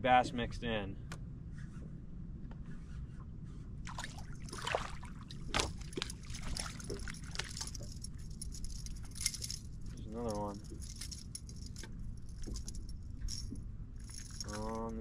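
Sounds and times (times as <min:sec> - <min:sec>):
steady low rumble: 0:00.0 - 0:15.0
fish splashing in water: 0:03.9 - 0:07.5.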